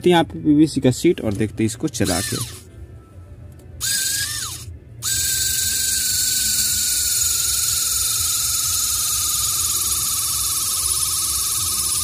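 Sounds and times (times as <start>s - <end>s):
mini drill motor whining: 2.0s - 2.7s, 3.8s - 12.0s.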